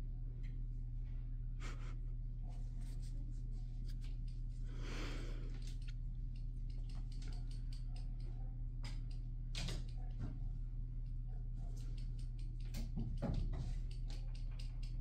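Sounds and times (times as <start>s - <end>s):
steady low hum: 0.0s - 15.0s
light clicks and taps: 2.9s - 4.6s, 5.5s - 15.0s.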